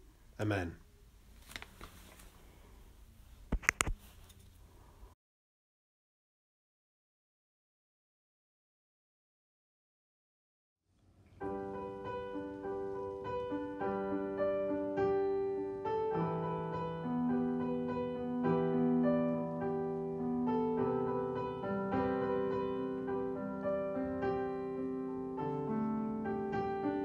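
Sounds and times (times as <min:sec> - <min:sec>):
piano chords and notes: 0:11.2 - 0:27.0.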